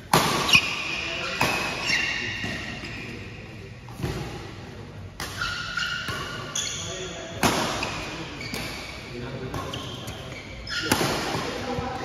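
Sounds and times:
rackets hitting shuttlecock: 0.0 - 3.1, 5.1 - 11.8
shoes squeaking on court: 0.4 - 3.4, 5.3 - 11.0.

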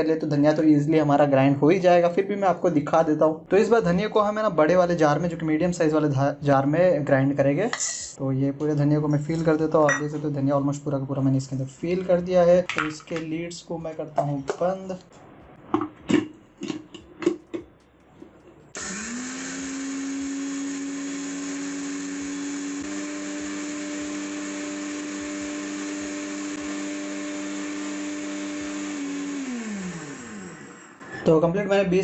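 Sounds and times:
mixer grinder motor whining: 18.7 - 31.2.

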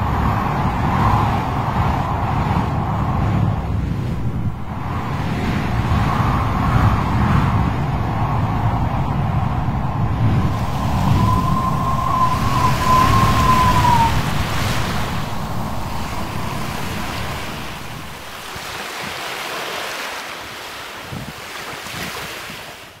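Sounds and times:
breaking surf rushing: 0.0 - 22.7
wind rumble: 0.0 - 22.9
distant traffic: 10.2 - 18.8
faint wavering tone: 10.6 - 18.3.

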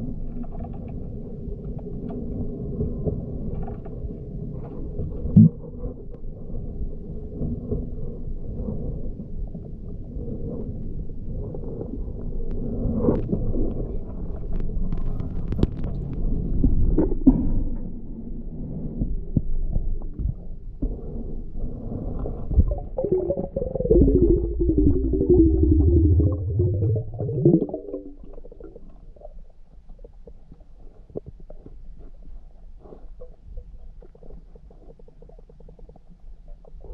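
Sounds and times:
muffled underwater rumble: 0.0 - 36.9
wavering pitched sound: 22.8 - 28.5.

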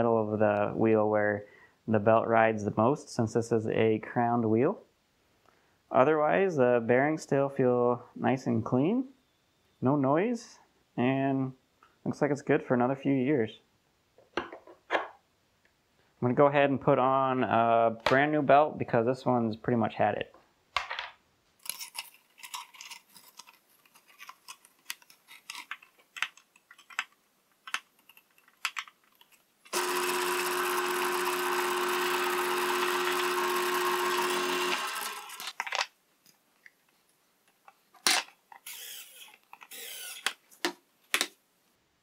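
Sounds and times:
small clicks and handling noises: 20.8 - 29.8
belt sander motor humming: 29.7 - 35.6, 38.7 - 40.2.

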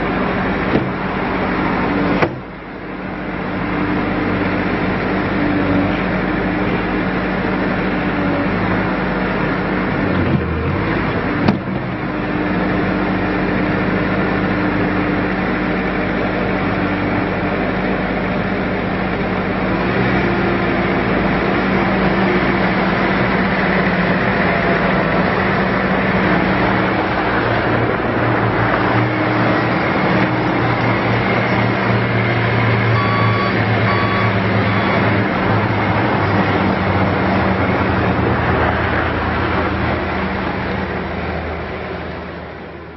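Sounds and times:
diesel engine running: 0.0 - 42.9
short high beeps: 33.0 - 35.1.

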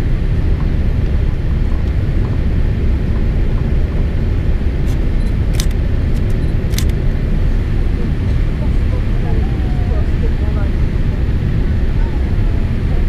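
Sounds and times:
airplane cabin engine rumble: 0.0 - 13.0
sharp clicks: 4.8 - 7.0.

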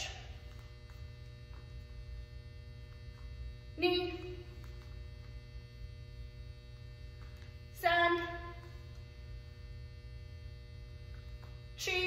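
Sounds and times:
electrical mains hum: 0.0 - 12.0.

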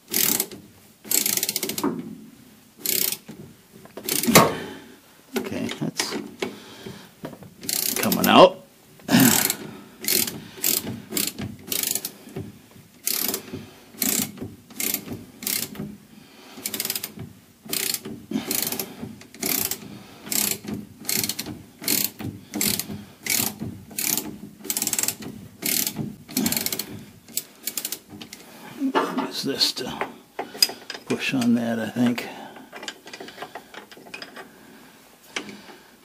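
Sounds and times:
ratchet wrench clicking: 0.1 - 1.9, 2.8 - 3.4, 4.0 - 4.5, 7.6 - 8.3, 9.3 - 12.2, 13.0 - 15.8, 16.6 - 28.4.

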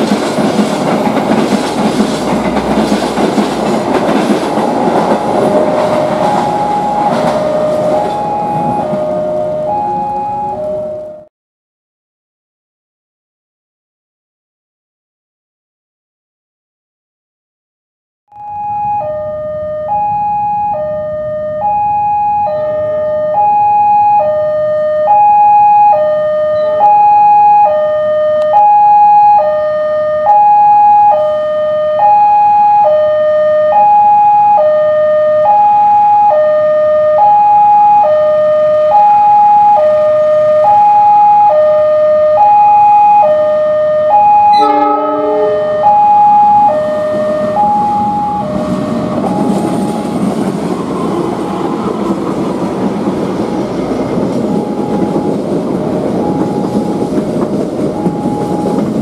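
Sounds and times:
train rumble: 0.0 - 11.2, 44.6 - 59.0
two-tone railway warning alarm: 0.0 - 11.3, 18.4 - 59.0.

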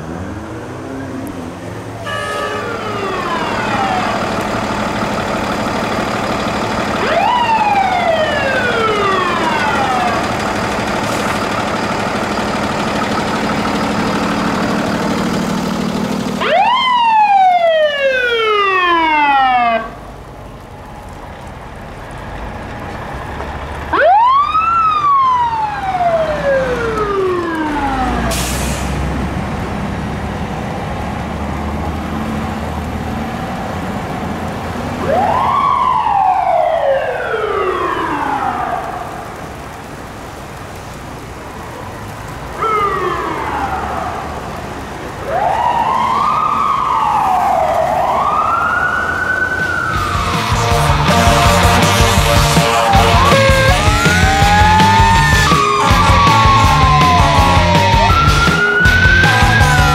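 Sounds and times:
emergency siren wailing: 0.0 - 22.3, 23.0 - 59.9.

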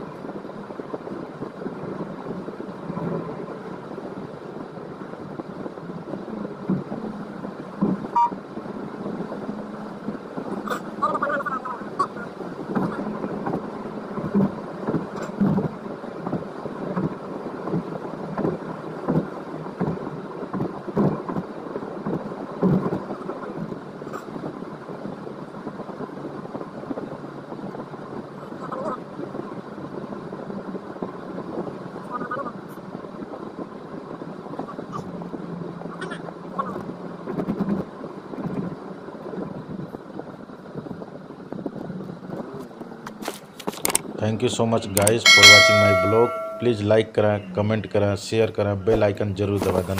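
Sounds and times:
car road and wind noise: 0.0 - 49.9
low hum: 45.1 - 46.9.

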